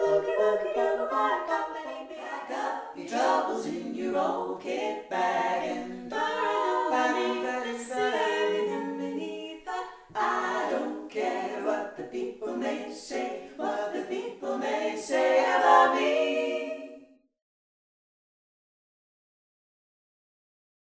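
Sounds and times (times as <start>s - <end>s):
women singing a cappella harmony: 0.0s - 17.2s.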